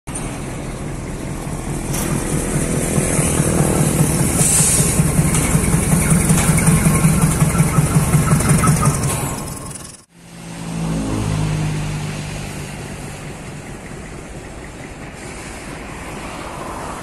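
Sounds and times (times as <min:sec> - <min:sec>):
diesel locomotive engine throbbing: 0:00.1 - 0:10.1, 0:10.9 - 0:17.0
hiss: 0:03.9 - 0:05.2, 0:15.1 - 0:17.0.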